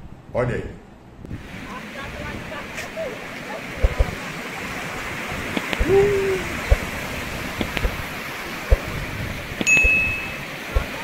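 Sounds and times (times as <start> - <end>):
creek rushing in flood: 1.3 - 11.0
high clear ding: 9.6 - 10.5
short tone: 9.7 - 10.4.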